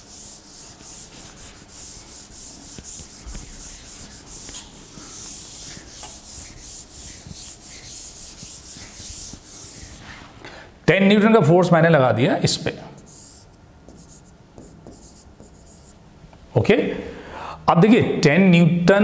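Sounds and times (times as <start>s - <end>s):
eraser rubbing on board: 0.0s - 10.2s, 13.0s - 16.0s.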